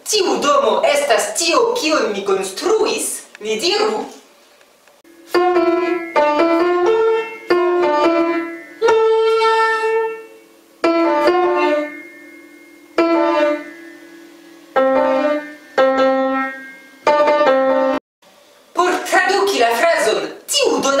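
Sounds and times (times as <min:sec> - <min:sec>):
upright piano single notes: 0:05.2 - 0:18.0.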